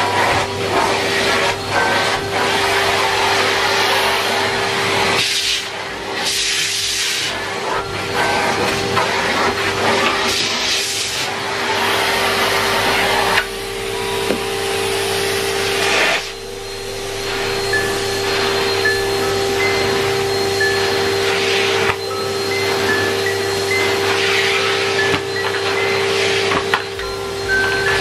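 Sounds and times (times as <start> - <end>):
vacuum cleaner running: 0.0 - 28.0.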